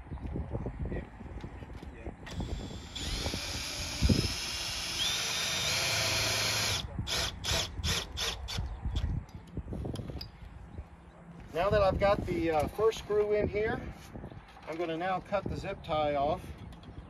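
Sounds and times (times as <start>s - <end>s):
cordless drill driving screw: 2.3s - 8.7s.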